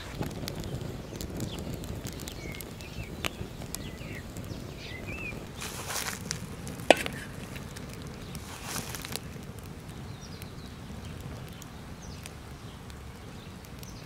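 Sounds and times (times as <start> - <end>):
small birds chirping: 0.0 - 14.0
wood fire crackling and popping: 0.0 - 14.0.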